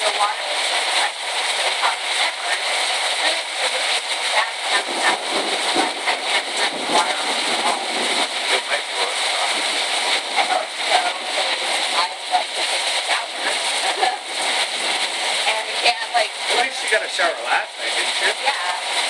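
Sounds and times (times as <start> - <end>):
heavy rain pouring off roof: 0.0 - 19.0
water splashing: 0.0 - 19.0.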